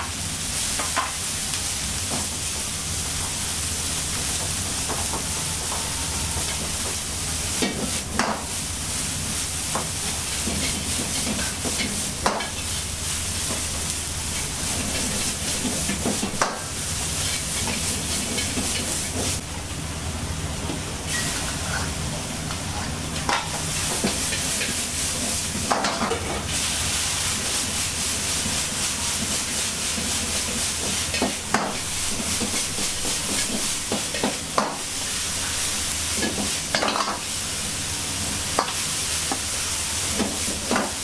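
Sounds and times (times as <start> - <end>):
gas flame: 0.0 - 19.6, 22.5 - 41.0
vegetables sizzling in a wok: 0.0 - 41.0
steady low hum: 2.1 - 9.8.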